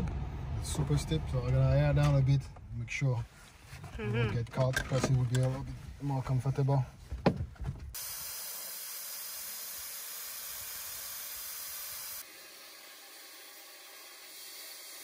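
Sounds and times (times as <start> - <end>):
air hissing from tire valve: 8.0 - 15.0.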